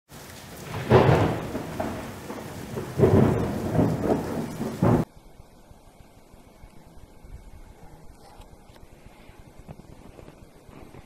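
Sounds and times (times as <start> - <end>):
thunder-like rumbles: 0.1 - 5.1.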